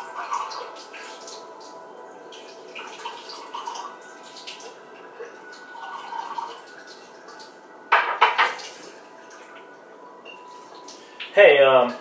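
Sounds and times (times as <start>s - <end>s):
dishes clinking: 7.9s - 8.8s, 10.2s - 10.6s.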